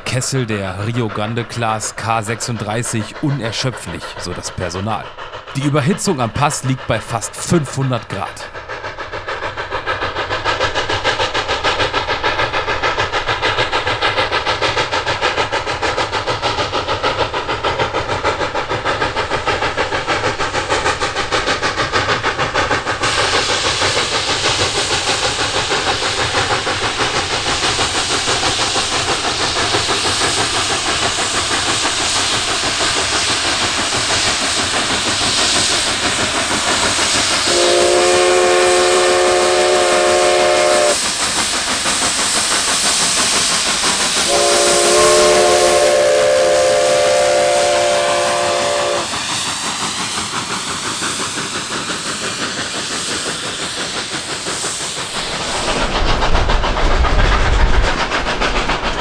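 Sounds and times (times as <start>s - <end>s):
steam hissing: 0.0s - 59.0s
steam locomotive exhaust beating: 0.0s - 59.0s
steam whistle chord: 37.5s - 41.0s, 44.3s - 49.1s.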